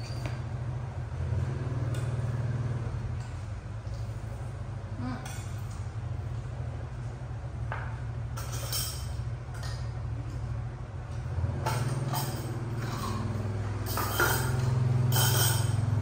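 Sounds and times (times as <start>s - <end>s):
bowls and chopsticks clinking: 11.5s - 16.0s.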